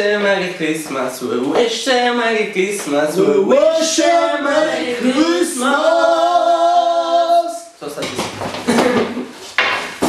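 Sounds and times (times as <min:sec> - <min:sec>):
voices singing long notes: 0:02.0 - 0:07.8.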